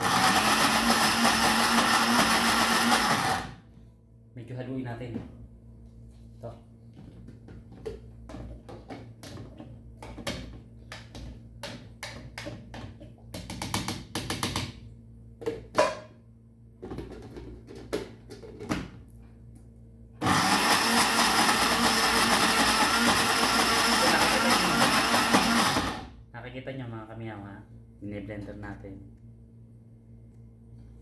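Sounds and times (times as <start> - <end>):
electric blender grinding: 0.0 - 3.6, 20.2 - 26.1.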